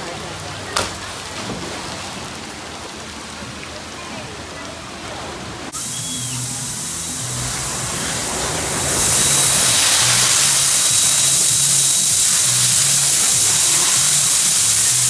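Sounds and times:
water rushing down slide: 5.0s - 15.0s.

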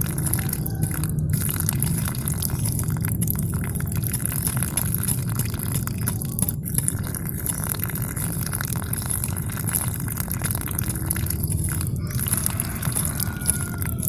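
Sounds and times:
water pouring into a puddle: 0.0s - 14.0s.

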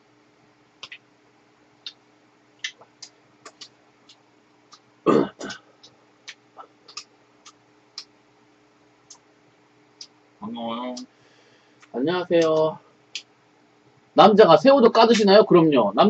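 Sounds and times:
person clearing throat: 5.1s - 5.7s.

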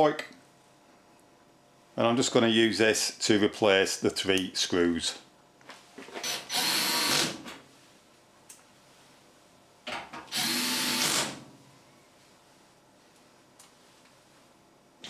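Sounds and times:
drill driving screws: 6.2s - 7.4s, 10.3s - 11.4s.

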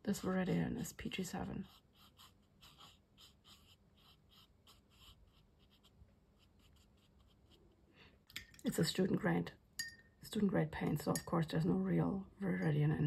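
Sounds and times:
brush strokes on rough paper: 0.0s - 7.7s.

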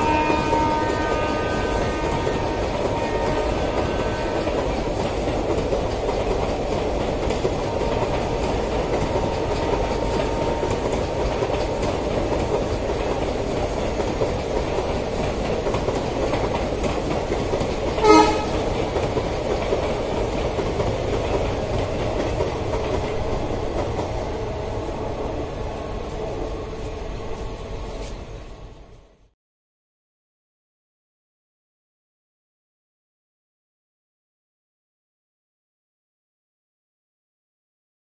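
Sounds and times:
train horn toot: 0.0s - 4.6s, 18.0s - 18.7s
train wheels rumbling on rails: 0.0s - 29.3s.

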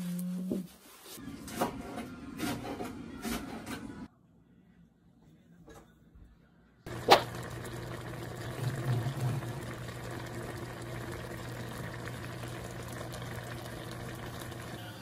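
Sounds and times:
broth bubbling in a pan: 6.9s - 15.0s.

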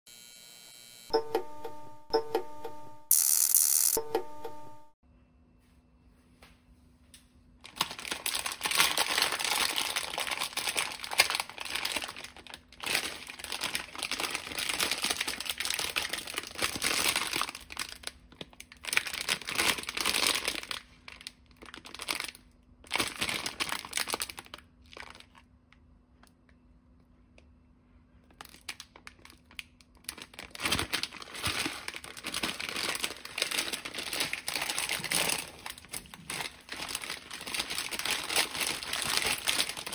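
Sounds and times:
plastic packet tearing open: 7.6s - 25.5s, 28.4s - 39.9s
plastic packet crinkling: 7.6s - 25.6s, 28.3s - 39.9s.

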